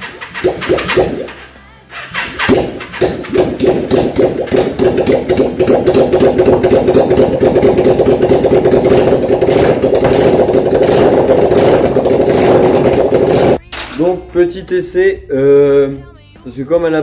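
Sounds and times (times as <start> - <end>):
motorcycle engine running: 2.2 - 13.6.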